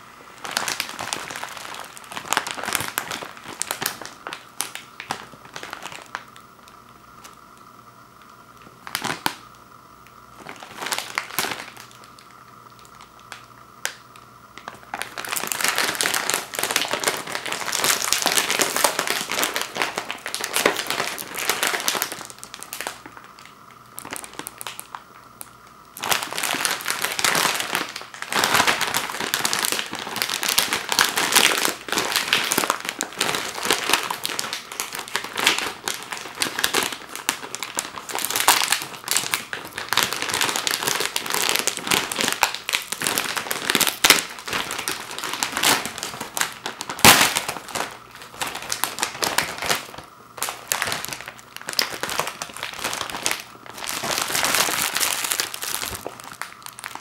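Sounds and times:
plastic bag crinkling: 0:00.0 - 0:57.0
sharp crack: 0:47.0 - 0:47.5.

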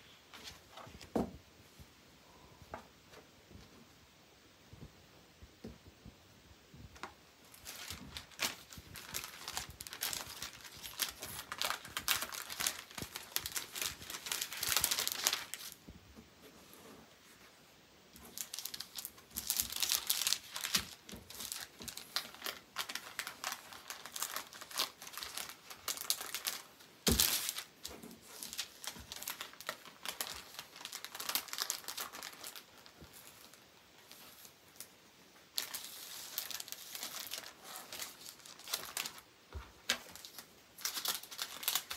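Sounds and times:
cellophane sleeve crinkling: 0:07.0 - 0:15.8, 0:18.1 - 0:41.9.

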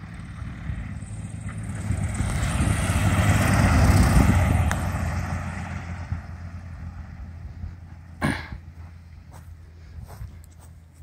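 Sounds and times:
light plane engine and propeller: 0:00.0 - 0:11.0.

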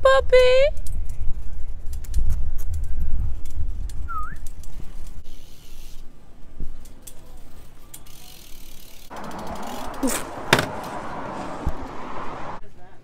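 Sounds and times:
bike freewheel ratcheting clicks: 0:04.4 - 0:06.1, 0:06.8 - 0:10.1.

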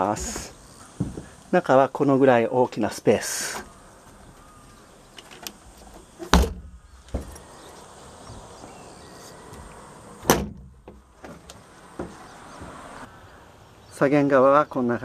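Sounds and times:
hatch lids thudding shut: 0:05.2 - 0:07.5, 0:09.5 - 0:12.2.

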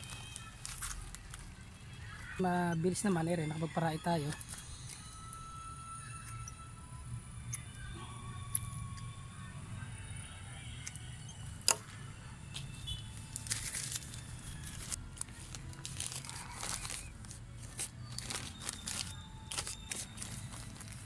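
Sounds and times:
plastic bags crinkling: 0:00.0 - 0:04.6, 0:13.2 - 0:21.0.

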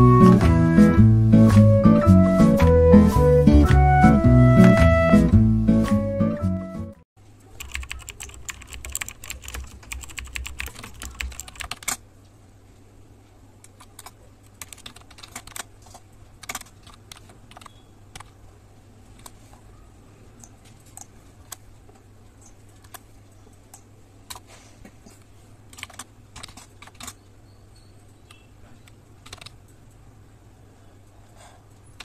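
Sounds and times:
keyboard key clicks: 0:07.6 - 0:12.0.

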